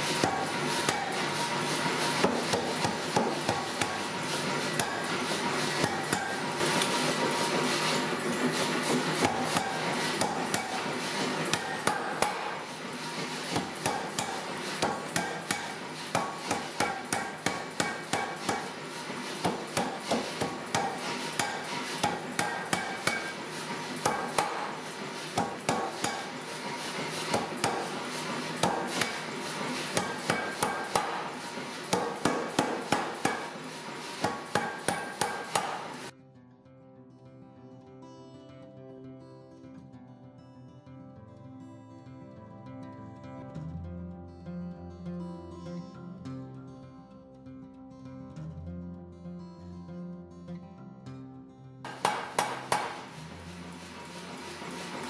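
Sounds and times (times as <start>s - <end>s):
machine running noise: 0.0s - 36.1s, 51.9s - 55.0s
power hammer striking hot steel: 0.0s - 36.1s, 51.9s - 55.0s.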